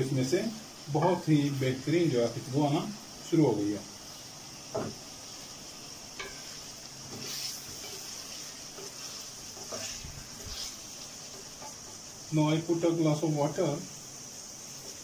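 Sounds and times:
food sizzling in a steel pot: 0:00.0 - 0:15.0
wooden spatula scraping pot: 0:06.2 - 0:11.8.

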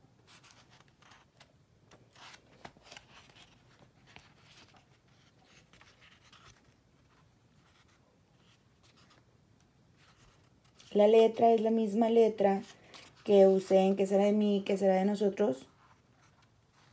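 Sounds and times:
book pages rustling: 0:00.2 - 0:11.8, 0:12.4 - 0:14.1, 0:15.7 - 0:16.9.

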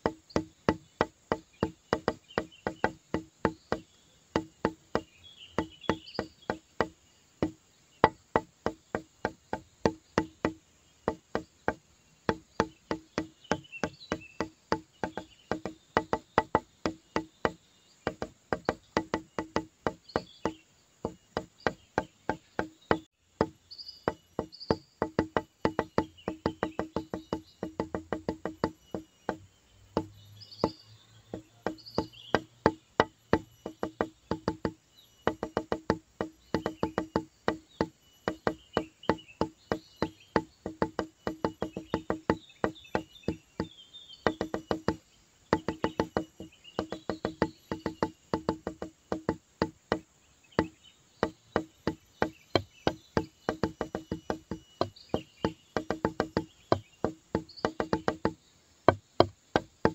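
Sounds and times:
wood-block click music: 0:00.0 - 0:59.9.

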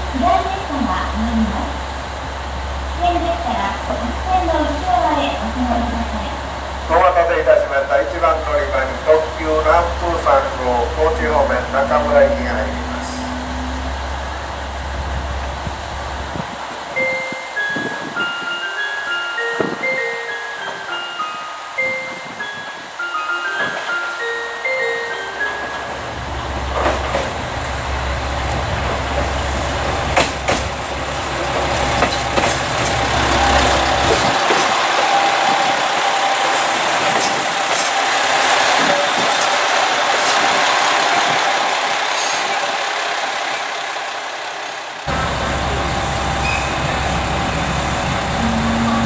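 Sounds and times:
diesel train idling rumble: 0:00.0 - 0:49.0
train engines and wheels rushing: 0:00.0 - 0:49.0
thin steady whine: 0:02.7 - 0:16.3, 0:45.1 - 0:49.0
wheel clicks over rail joints: 0:30.1 - 0:44.0.

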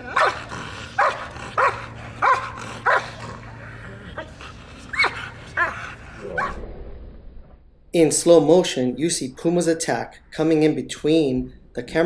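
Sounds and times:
dog barking: 0:00.1 - 0:03.3.

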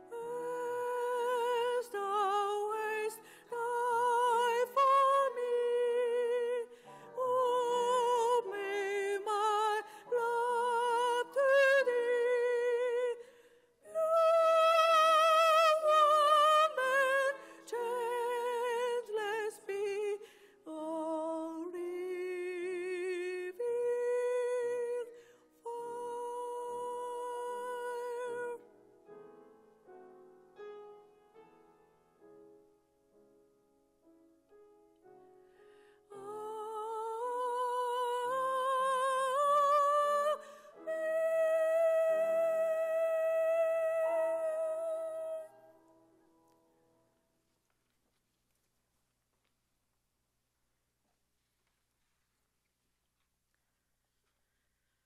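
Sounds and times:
person singing with vibrato: 0:00.0 - 0:28.7, 0:36.0 - 0:45.9.

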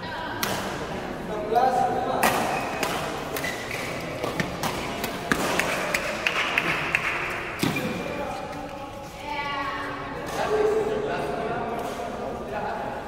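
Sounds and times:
rackets striking shuttlecock: 0:00.4 - 0:00.9, 0:02.2 - 0:08.1.

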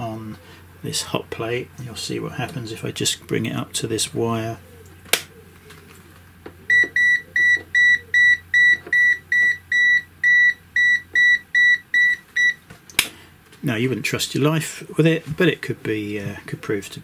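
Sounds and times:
high repeated beeping: 0:06.7 - 0:12.6.

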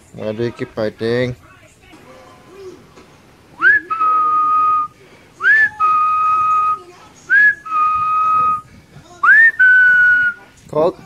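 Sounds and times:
person whistling: 0:03.6 - 0:06.7.

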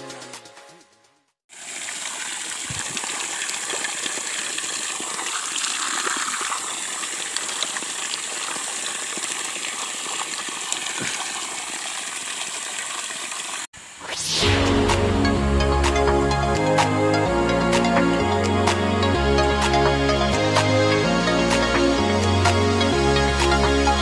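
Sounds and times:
water jet splashing on wet ground: 0:01.5 - 0:13.8.

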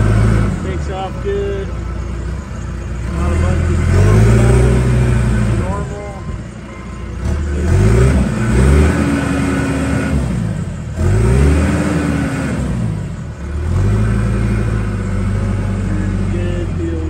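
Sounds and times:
diesel engine revving: 0:00.0 - 0:17.0.

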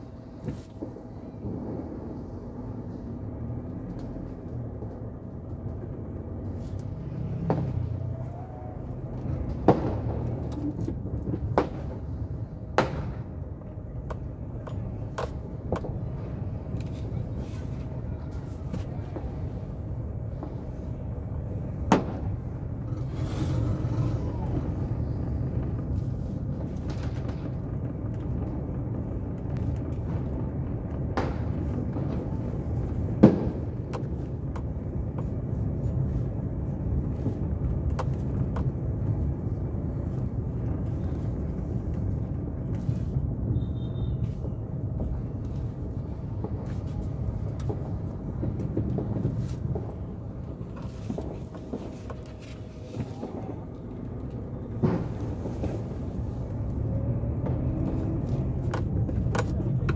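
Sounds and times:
vehicle rumbling along street: 0:00.0 - 0:59.9
firecracker bangs: 0:12.7 - 0:13.4, 0:30.0 - 0:34.2, 0:54.7 - 0:56.2.

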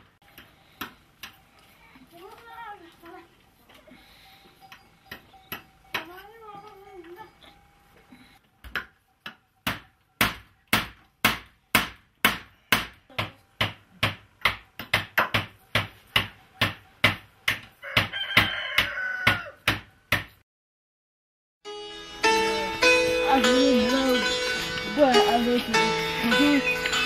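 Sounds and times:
hatchet striking a block: 0:08.6 - 0:20.4
rooster crowing: 0:17.8 - 0:19.7.

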